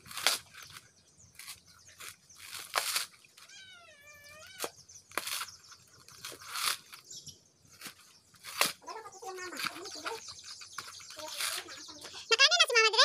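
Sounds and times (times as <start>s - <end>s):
knife tearing coconut husk: 0.0s - 3.5s, 4.4s - 7.1s, 7.7s - 11.8s.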